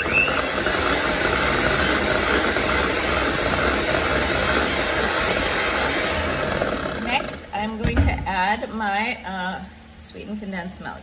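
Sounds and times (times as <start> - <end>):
electric hand mixer running: 0.0 - 7.5.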